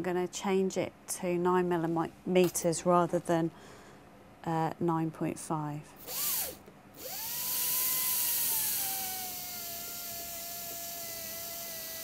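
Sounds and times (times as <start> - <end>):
dental handpiece whining: 6.0 - 12.0.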